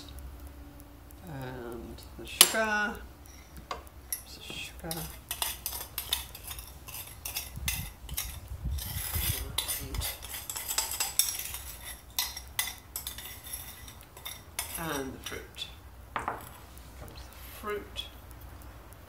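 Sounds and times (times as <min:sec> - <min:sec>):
metal spoon scraping glass bowl: 0:04.9 - 0:15.4.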